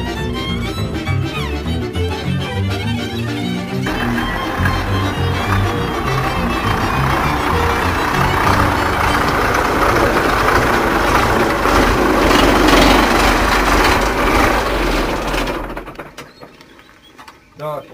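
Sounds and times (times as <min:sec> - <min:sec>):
truck engine driving past: 0:03.8 - 0:16.0.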